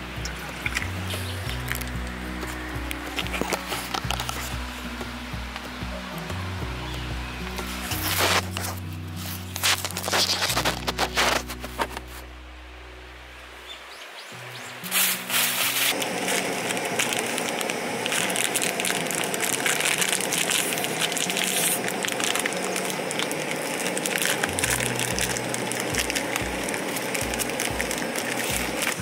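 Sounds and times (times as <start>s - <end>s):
food sizzling in hot fat: 14.8s - 29.0s.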